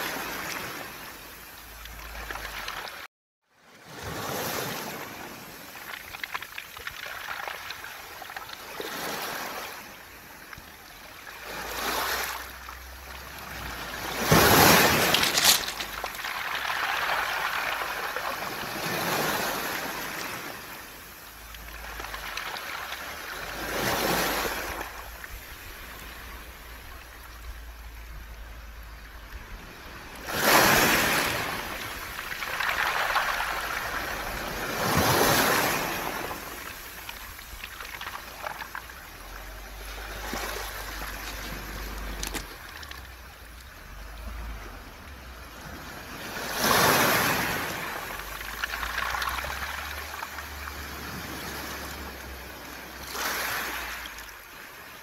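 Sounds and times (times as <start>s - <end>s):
waves washing over pebbles: 0.0s - 3.1s, 3.7s - 55.0s
pebbles rattling: 14.2s - 18.4s, 31.8s - 34.6s, 36.5s - 39.0s, 40.6s - 43.2s, 48.2s - 50.6s.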